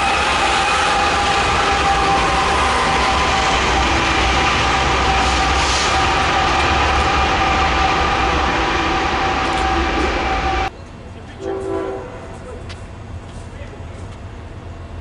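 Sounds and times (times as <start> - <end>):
train horn blast: 0.0 - 10.7, 11.4 - 12.5
train engines rumbling: 0.0 - 15.0.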